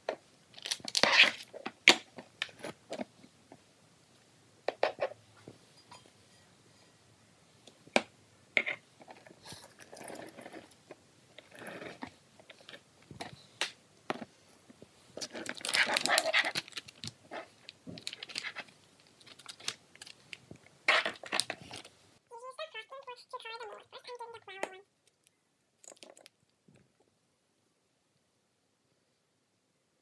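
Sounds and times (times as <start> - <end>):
plastic crinkling: 0.5 - 1.5, 15.2 - 22.0
water beads rustling: 15.2 - 22.0.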